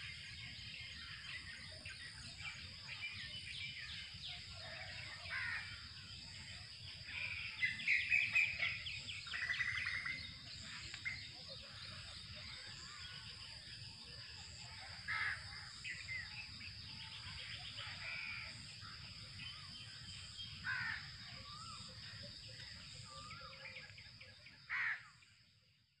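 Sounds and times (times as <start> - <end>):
birds calling: 6.9 - 13.4, 14.5 - 23.9.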